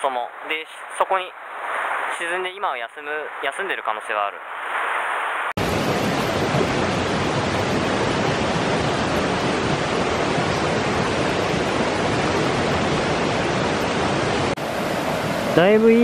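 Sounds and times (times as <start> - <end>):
river rushing over rocks: 5.6 - 16.0.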